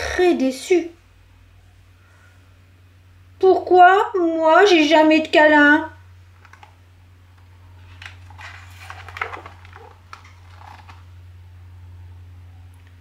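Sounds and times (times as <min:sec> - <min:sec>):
steady low hum: 0:00.0 - 0:13.0
book page turning: 0:07.7 - 0:11.2
handling noise: 0:07.8 - 0:11.1.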